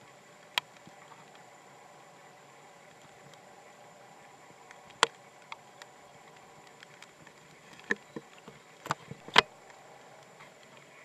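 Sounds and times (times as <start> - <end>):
light ticks: 0.0 - 1.5, 2.8 - 3.5, 4.6 - 10.9
water flowing across grass: 0.0 - 11.0.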